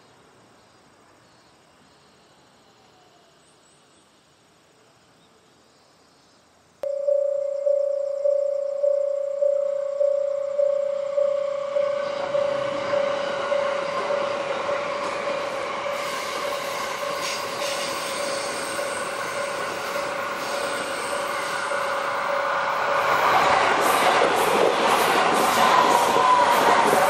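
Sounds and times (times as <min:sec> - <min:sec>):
electric train rumble and rail noise: 0:00.0 - 0:27.0
steady high tone: 0:06.8 - 0:17.2.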